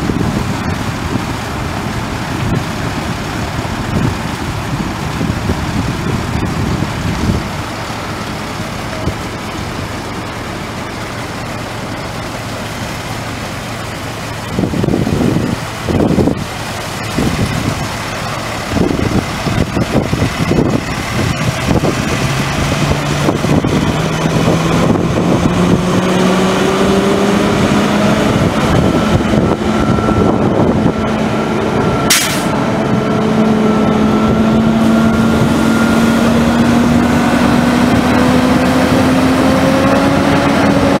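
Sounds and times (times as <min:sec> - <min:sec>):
fire engine pump engine: 0:00.0 - 0:41.0
water rushing: 0:00.0 - 0:41.0
sharp click: 0:32.1 - 0:32.5.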